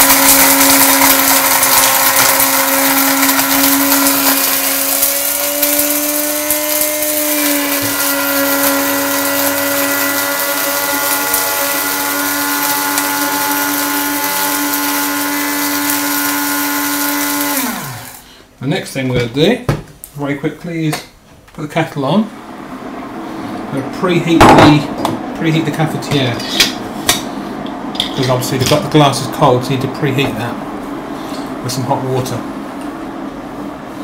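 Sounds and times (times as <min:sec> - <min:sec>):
coffee grinder whining: 0:00.0 - 0:18.3.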